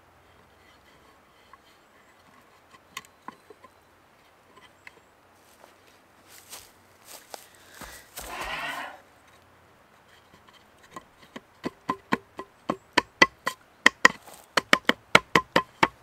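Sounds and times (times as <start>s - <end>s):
scraping rustle: 5.4s - 9.4s
sharp wooden knocks: 10.9s - 16.0s.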